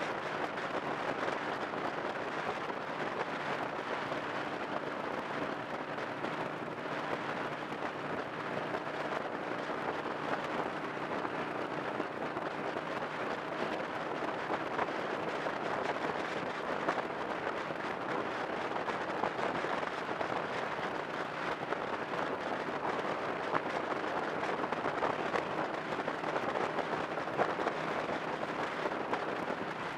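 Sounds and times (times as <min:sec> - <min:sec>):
faint engine hum: 0:00.0 - 0:29.9
road and wind noise in car: 0:00.0 - 0:29.9.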